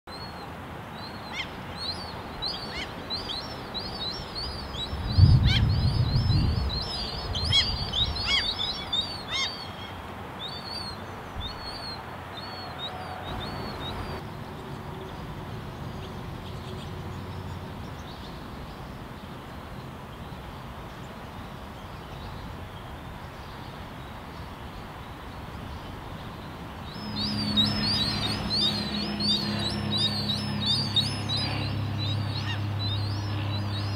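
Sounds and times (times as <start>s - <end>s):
gull chicks begging peeps: 6.8s - 9.9s, 27.0s - 33.9s
low steady hum: 26.4s - 33.9s.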